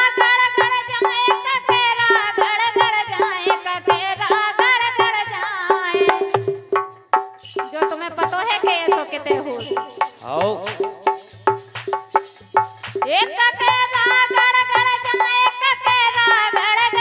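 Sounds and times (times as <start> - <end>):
woman singing folk song: 0.0 - 6.4, 7.7 - 10.1, 13.0 - 17.0
harmonium: 0.0 - 7.0, 7.6 - 17.0
hand-struck percussion beat: 0.0 - 17.0.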